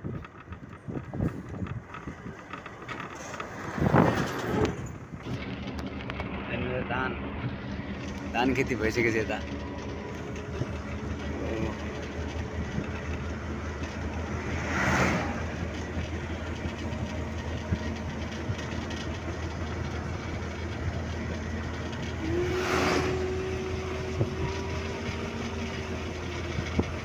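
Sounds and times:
vehicle engine and road rumble: 0.0s - 27.0s
vehicles passing whoosh: 1.2s - 17.7s, 22.0s - 23.5s.

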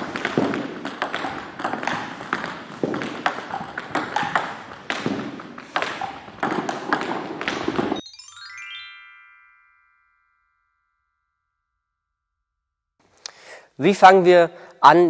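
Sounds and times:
table tennis ball clicking: 0.0s - 8.0s.

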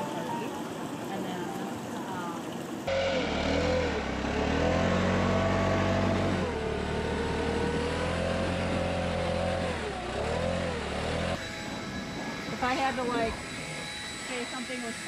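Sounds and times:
engine revving gently: 2.9s - 11.4s.

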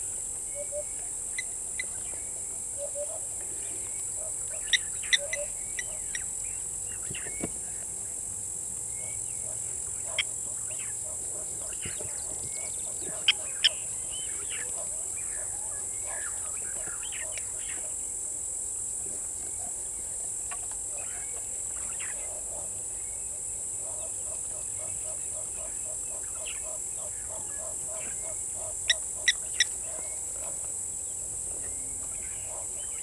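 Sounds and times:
birds calling: 0.0s - 7.9s, 8.8s - 18.0s, 20.9s - 33.0s
insects buzzing: 0.0s - 33.0s.

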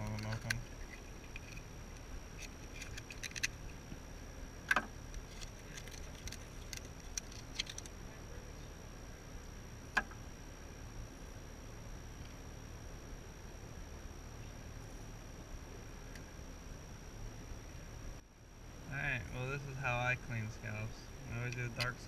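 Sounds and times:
blade clicking and scraping on shell: 2.4s - 3.7s.

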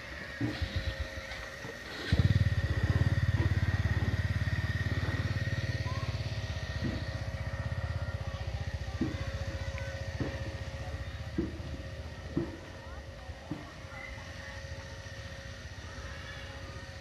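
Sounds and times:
small motorcycle engine putter: 0.2s - 12.8s.

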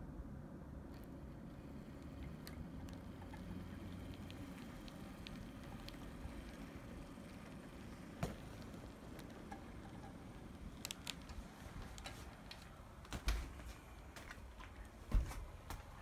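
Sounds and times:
model train rolling rumble: 0.9s - 13.0s.

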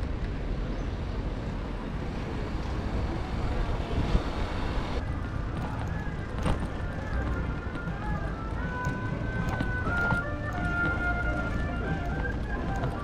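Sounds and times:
rolling road noise: 0.0s - 13.0s
town traffic: 0.0s - 13.0s
wind rumble on microphone: 0.0s - 13.0s.

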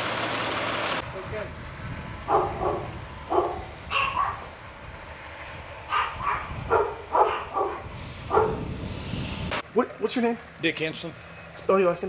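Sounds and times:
dog barking: 2.2s - 4.5s, 5.9s - 8.7s.

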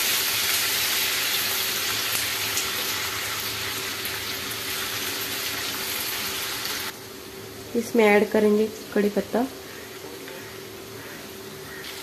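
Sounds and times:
paste sizzling in hot oil: 0.0s - 6.9s, 11.7s - 12.0s.

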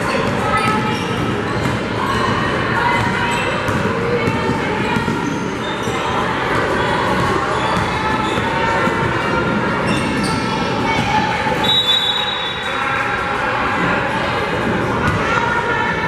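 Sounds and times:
spectators chatter: 0.0s - 16.0s
referee's whistle: 11.6s - 12.8s.

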